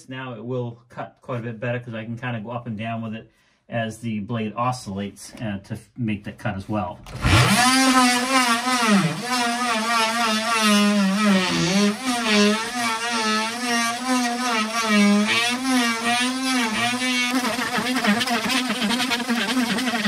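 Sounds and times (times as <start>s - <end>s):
oscillating tool cutting plywood: 7.1s - 20.0s.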